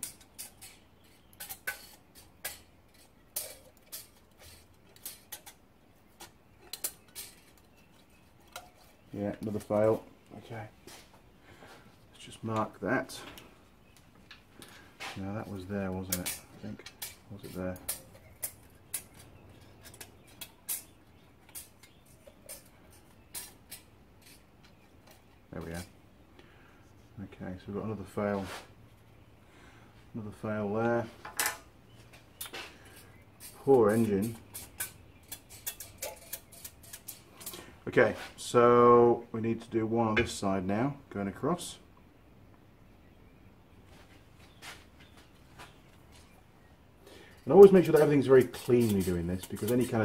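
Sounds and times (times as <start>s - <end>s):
metal blade scraping and clicking: 0.0s - 5.6s, 33.4s - 37.6s, 47.6s - 50.0s.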